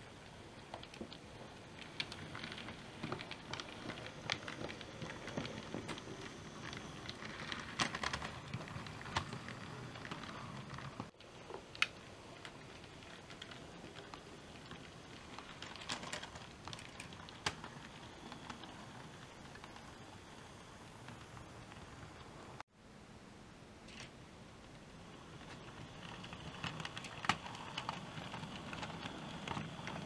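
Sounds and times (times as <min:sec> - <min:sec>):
model train whirring: 0:25.1 - 0:30.0.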